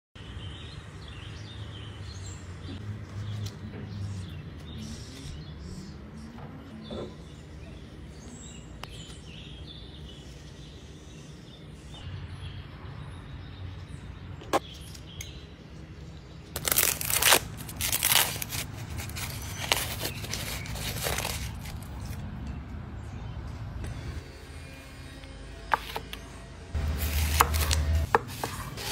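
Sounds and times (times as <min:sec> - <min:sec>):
husks crinkling: 0:16.6 - 0:22.2.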